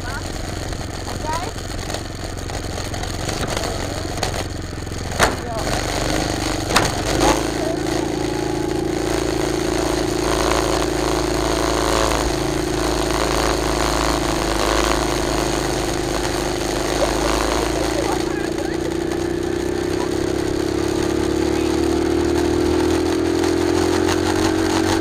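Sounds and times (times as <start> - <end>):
small engine running: 0.0 - 25.0
sharp knocks: 2.9 - 7.7.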